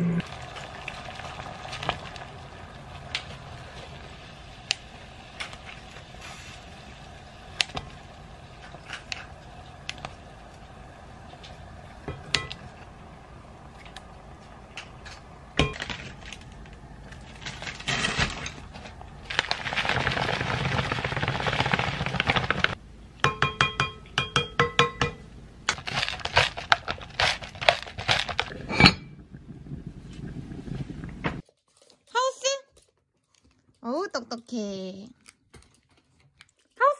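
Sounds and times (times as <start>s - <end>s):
pepper mill grinding: 25.7s - 28.6s.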